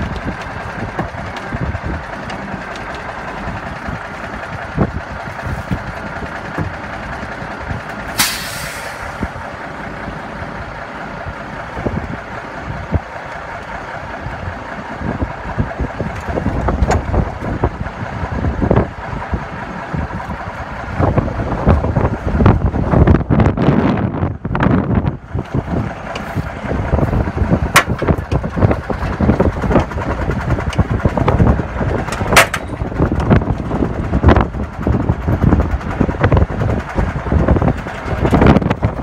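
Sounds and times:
wind buffeting microphone: 0.0s - 8.2s, 8.8s - 39.0s
truck diesel engines running: 0.0s - 39.0s
air brake hiss: 8.2s - 9.3s.

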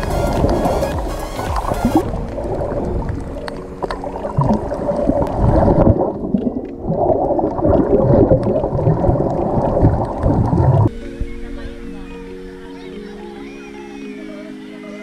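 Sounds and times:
muffled underwater rushing water: 0.0s - 12.0s.

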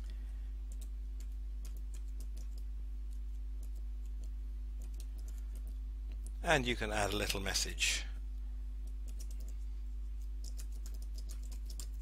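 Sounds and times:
low electrical hum: 0.0s - 12.0s
keyboard keystrokes: 10.4s - 12.0s.

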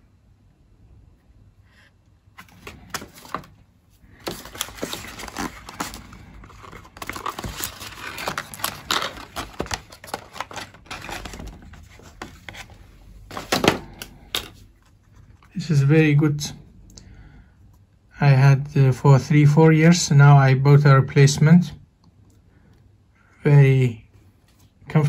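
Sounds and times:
packaging scraping and crackling: 2.4s - 15.5s.

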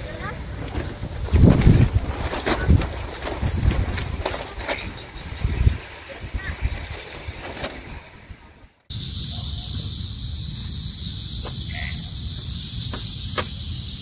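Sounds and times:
insects chirping in pulses: 0.0s - 14.0s
high-pitched insect trill: 8.9s - 14.0s.

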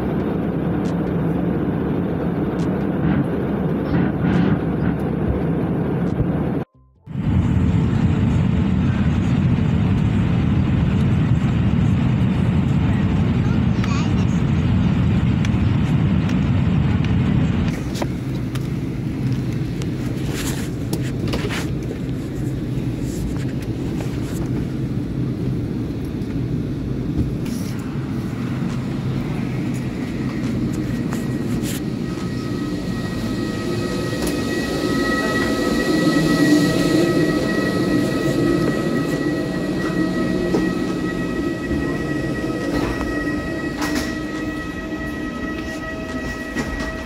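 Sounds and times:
jet rumble in flight: 0.0s - 47.0s
steady high whine: 0.0s - 47.0s
cabin hum: 27.1s - 47.0s.

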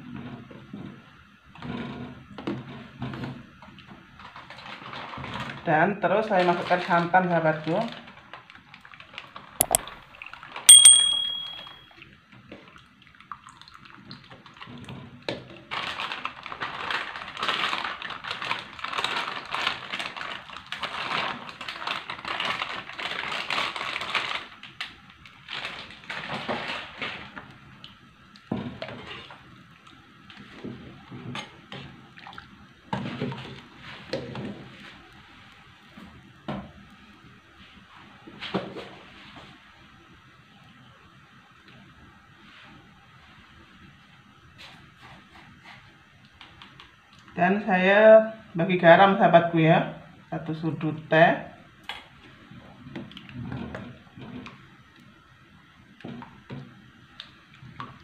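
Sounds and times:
bright ding: 9.6s - 9.9s, 10.7s - 11.8s.

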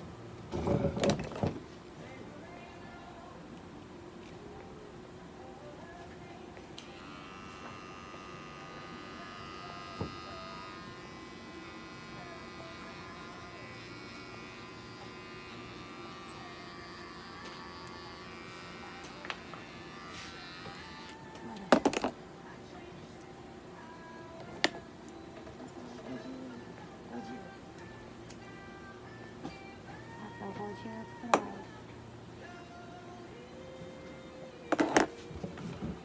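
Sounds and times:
electric trimmer whining: 6.8s - 21.2s.

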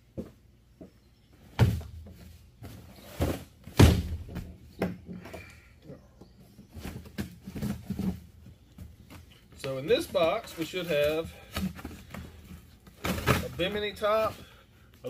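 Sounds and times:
handling noises: 0.1s - 15.0s
cardboard boxes thumping: 1.6s - 5.0s, 12.9s - 13.6s.

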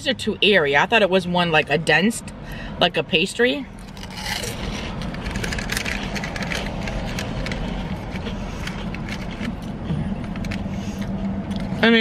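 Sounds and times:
chewing crunchy snack: 3.8s - 11.8s.

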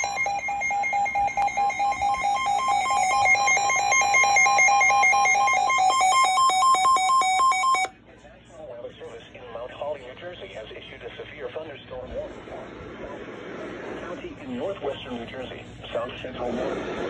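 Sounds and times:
steady high alarm tone: 0.0s - 7.9s
weather radio alarm beeps: 0.0s - 7.9s.

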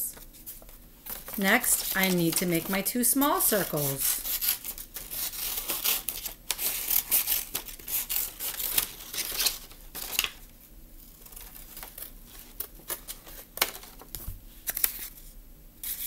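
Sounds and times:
scissors snipping paper: 1.4s - 10.3s.

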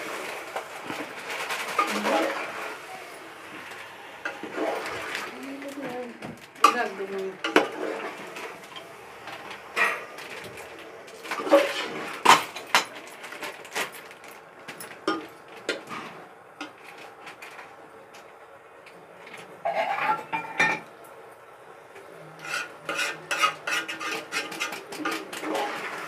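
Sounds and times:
steel ladle scraping metal pot: 19.6s - 20.8s, 22.4s - 26.0s.

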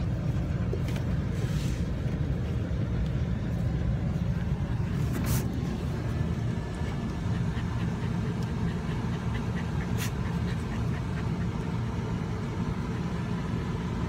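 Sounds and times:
van engine rumbling: 0.0s - 14.0s
dog panting: 3.4s - 13.9s.

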